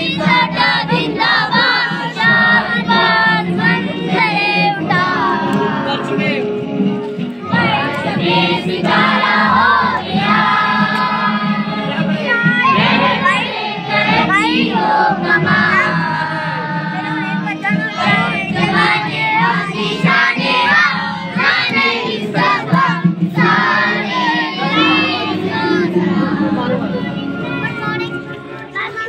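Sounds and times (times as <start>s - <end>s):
children singing together: 0.0s - 6.2s, 7.4s - 29.0s
music accompaniment: 0.0s - 29.0s.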